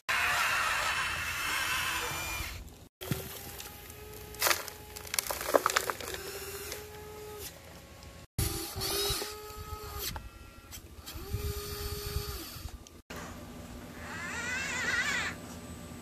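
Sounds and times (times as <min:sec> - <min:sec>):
electric motor whining: 0:00.1 - 0:12.9.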